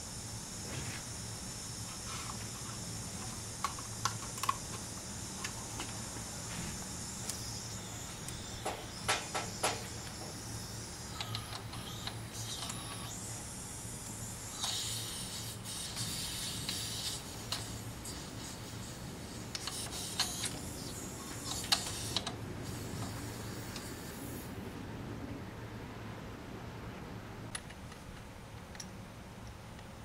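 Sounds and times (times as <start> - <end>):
steady low hum: 0.0 - 30.0
hose fitting clicking and scraping: 2.1 - 6.0, 19.5 - 22.4.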